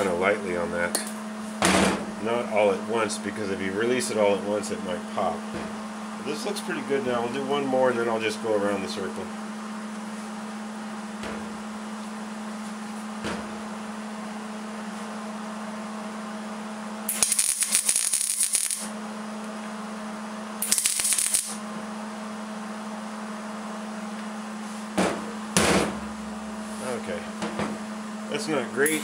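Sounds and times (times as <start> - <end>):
steady electrical hum: 0.0 - 29.0
welding arc crackling: 17.1 - 18.9, 20.6 - 21.6.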